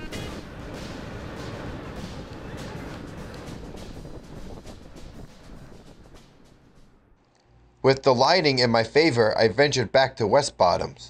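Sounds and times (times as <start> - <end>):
wind buffeting microphone: 0.2 - 7.0.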